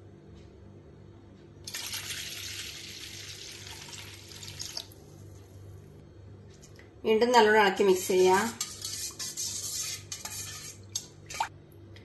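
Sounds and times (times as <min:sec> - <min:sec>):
water pouring into a steel bowl: 0:01.7 - 0:04.9.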